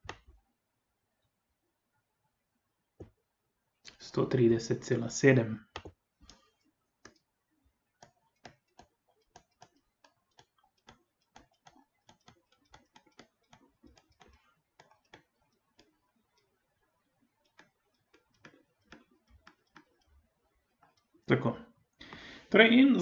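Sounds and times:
stylus tapping on tablet screen: 0.0s - 0.4s, 3.0s - 3.2s, 5.6s - 7.3s, 7.9s - 21.2s.

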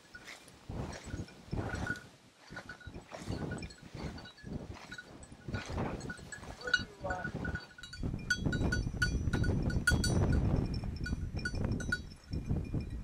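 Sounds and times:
rustling through dry grain: 0.0s - 7.3s
small bell jingling on dog collar: 2.6s - 13.0s.

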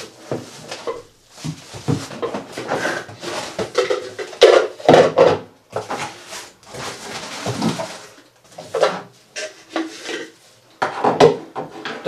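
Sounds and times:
box bumps: 0.2s - 8.1s
cardboard box rummaging: 5.8s - 8.7s.

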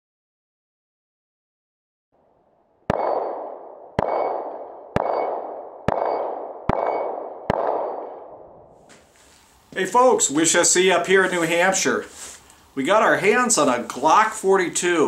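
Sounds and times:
pistol shots with ringing tail: 2.9s - 8.6s.

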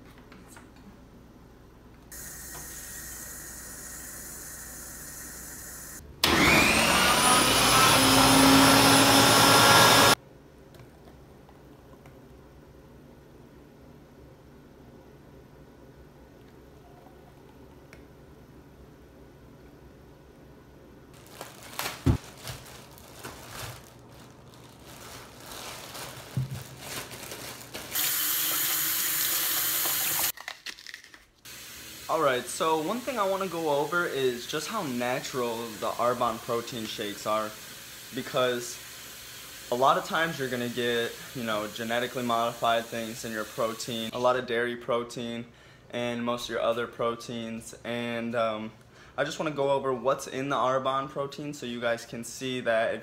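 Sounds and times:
blender motor whining: 2.4s - 10.2s, 27.9s - 30.3s
plastic bag crinkling: 21.2s - 28.0s, 30.3s - 31.4s.

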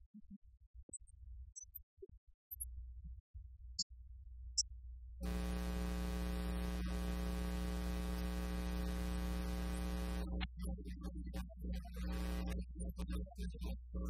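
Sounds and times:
electrical mains hum with hiss: 5.2s - 10.6s, 11.8s - 13.0s.

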